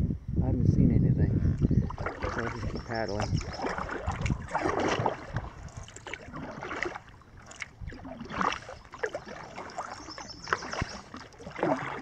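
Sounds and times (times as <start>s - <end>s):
paddle splashing through water: 1.6s - 12.0s
water dripping: 1.6s - 12.0s.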